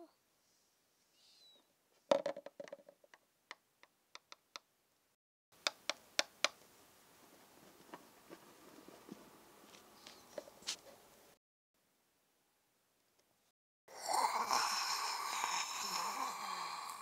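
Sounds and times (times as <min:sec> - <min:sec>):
sharp clicks and taps: 0:02.6 - 0:04.7, 0:05.6 - 0:06.6.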